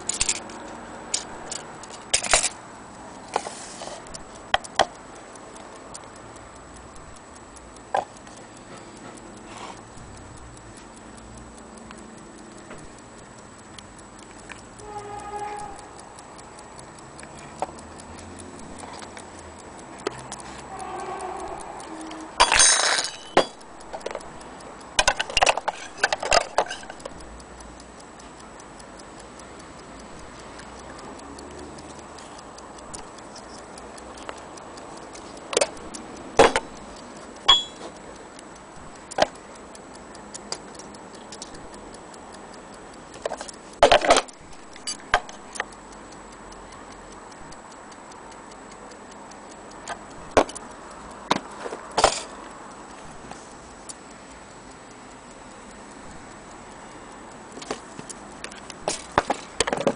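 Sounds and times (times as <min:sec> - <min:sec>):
clock ticking rapidly: 0:00.0 - 0:59.9
brass parts clicking and knocking: 0:20.7 - 0:24.1.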